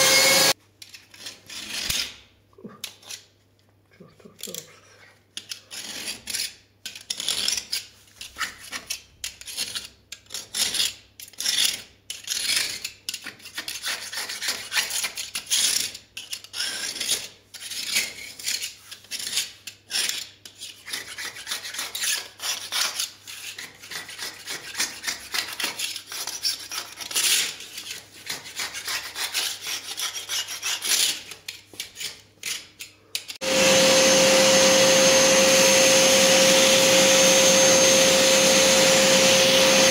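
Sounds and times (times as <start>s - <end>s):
vacuum cleaner running: 0.0s - 0.6s, 33.4s - 39.9s
grout scraper scratching: 0.0s - 2.2s, 4.4s - 39.9s.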